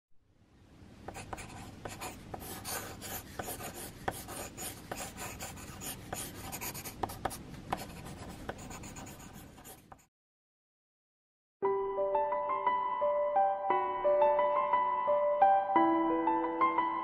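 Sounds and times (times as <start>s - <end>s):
pencil sketching on paper: 1.1s - 10.1s.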